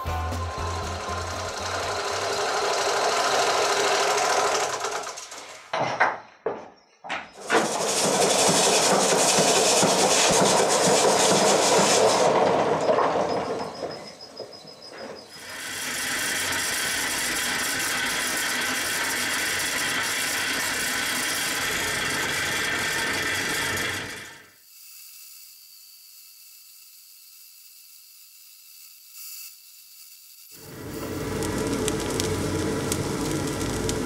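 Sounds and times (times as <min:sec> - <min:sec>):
belt sander grinding: 0:00.4 - 0:05.7, 0:07.4 - 0:34.0
air rushing through forge fire: 0:30.6 - 0:34.0.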